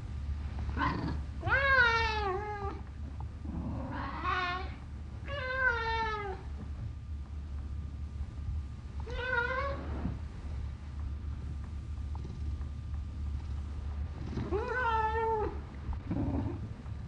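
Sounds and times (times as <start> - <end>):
steady low hum: 0.0 - 17.0
cat meowing: 9.1 - 9.8.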